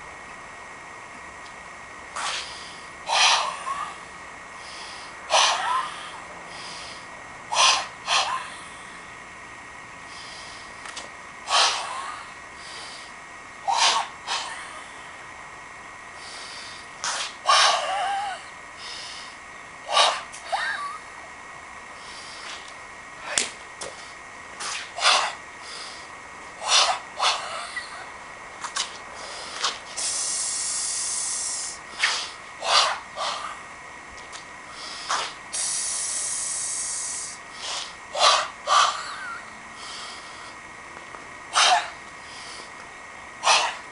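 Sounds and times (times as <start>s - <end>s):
sharp breath bursts: 2.2s - 3.9s, 4.6s - 9.0s, 10.1s - 10.8s, 16.2s - 17.9s, 29.1s - 33.5s, 34.7s - 39.0s, 39.8s - 40.6s, 41.6s - 42.8s, 43.4s - 43.8s.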